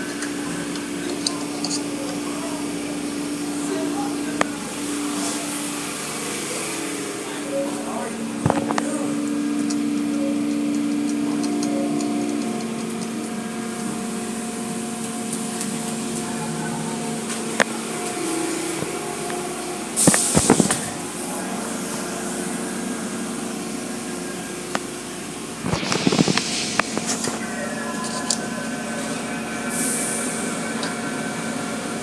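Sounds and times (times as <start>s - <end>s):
car wash machinery humming: 0.0s - 32.0s
hissing burst of spray: 25.8s - 27.2s.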